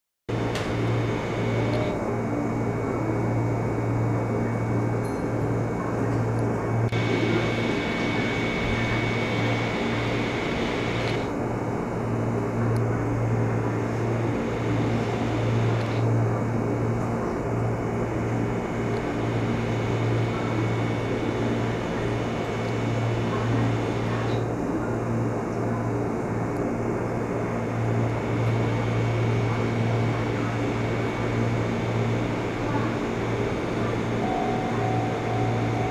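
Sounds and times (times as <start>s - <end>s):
faint high whine: 0.3s - 5.9s, 6.8s - 11.4s, 13.5s - 16.4s, 17.8s - 24.5s, 27.6s - 35.9s
low mechanical hum: 0.3s - 35.9s.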